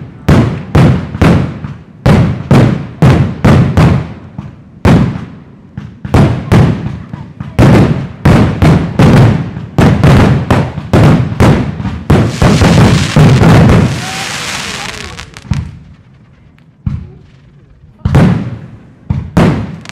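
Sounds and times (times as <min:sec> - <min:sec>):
fireworks bursting: 0:00.0 - 0:19.9.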